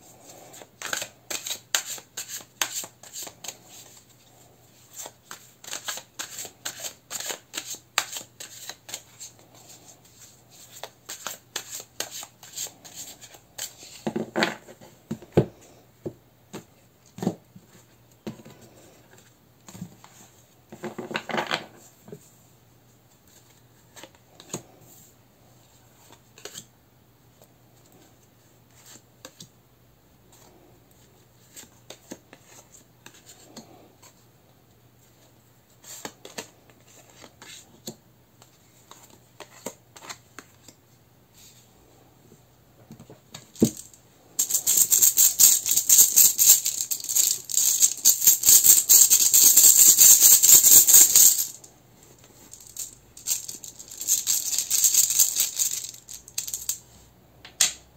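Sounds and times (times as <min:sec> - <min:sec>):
deck of cards shuffling: 0:00.3 - 0:04.1, 0:04.8 - 0:14.0, 0:43.6 - 0:56.8
cards clicking on wooden table: 0:05.0 - 0:09.0.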